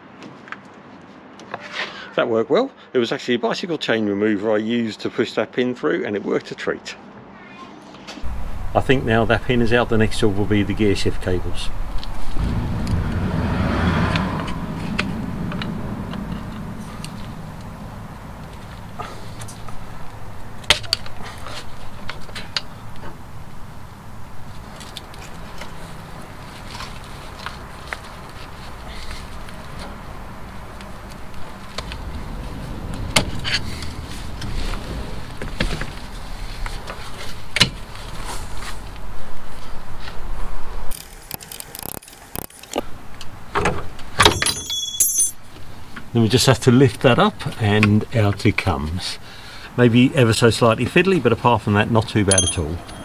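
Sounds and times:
low steady hum: 0:08.2 - 0:24.8
motor vehicle rumble: 0:08.2 - 0:44.1, 0:51.9 - 0:53.0.

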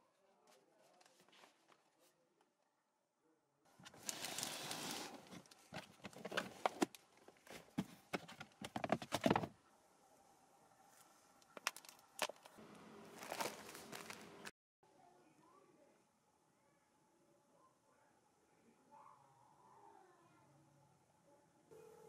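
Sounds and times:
papers rustling: 0:03.8 - 0:09.5, 0:11.4 - 0:14.5
plastic tote clicks and knocks: 0:07.7 - 0:09.5.

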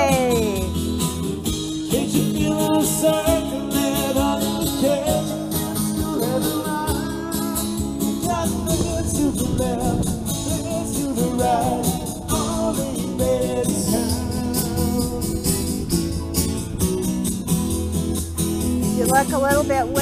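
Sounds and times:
person singing: 0:00.0 - 0:00.8, 0:01.8 - 0:15.7
live band playing: 0:00.0 - 0:20.0.

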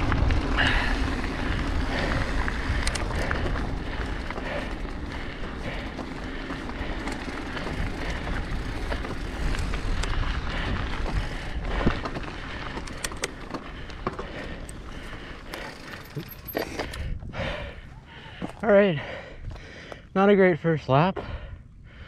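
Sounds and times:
wind rumble on microphone: 0:00.0 - 0:14.0, 0:16.9 - 0:17.8
bike clicks and rattles: 0:00.0 - 0:18.6
bike tyres on dirt: 0:00.0 - 0:22.0.

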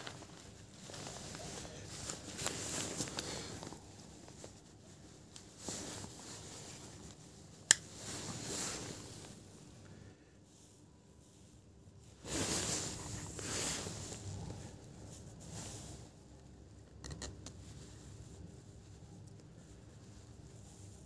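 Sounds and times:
leather rustling and scraping: 0:00.0 - 0:09.5, 0:12.2 - 0:16.2.

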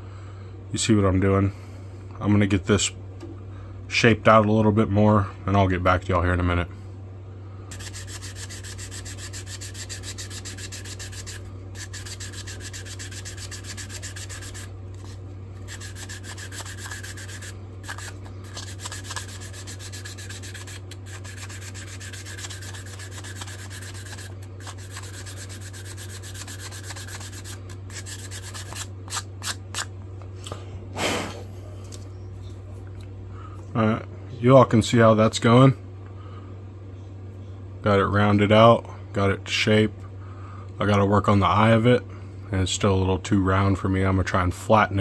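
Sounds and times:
sandpaper rubbing on wood: 0:07.7 - 0:29.8.

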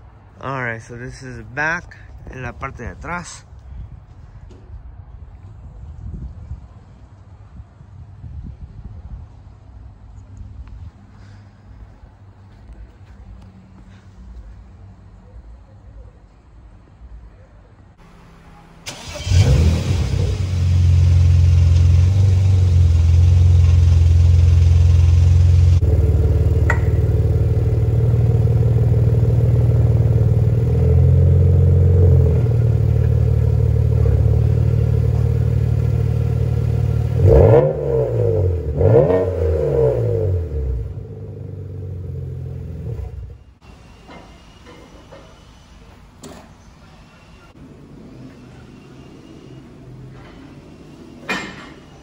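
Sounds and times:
car engine revving and idling: 0:18.0 - 0:43.5.

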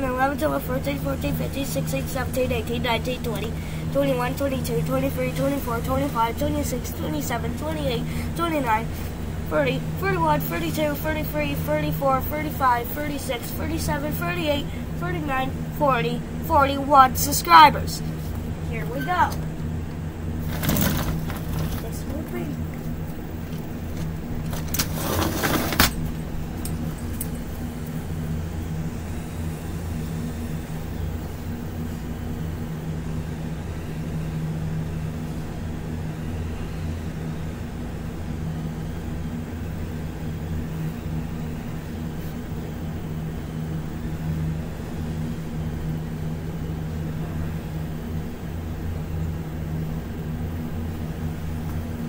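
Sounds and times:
low mechanical hum: 0:00.0 - 0:52.0
rattling clatter and thump: 0:20.4 - 0:22.0.

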